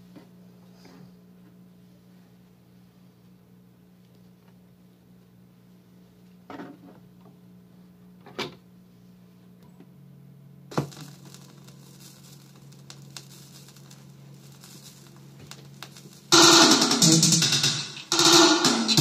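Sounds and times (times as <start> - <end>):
low steady hum: 0.0 - 19.0
vinyl record crackle: 10.7 - 19.0
reggae music: 16.3 - 19.0.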